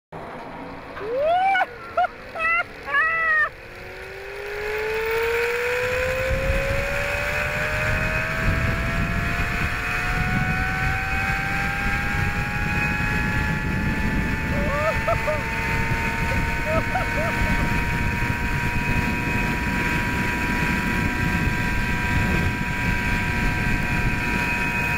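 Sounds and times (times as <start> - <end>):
zipline pulleys whining on cable: 0.2 - 24.9
person crying out: 1.0 - 3.6, 14.4 - 15.5, 16.2 - 17.6
wind rumble on microphone: 5.0 - 24.9.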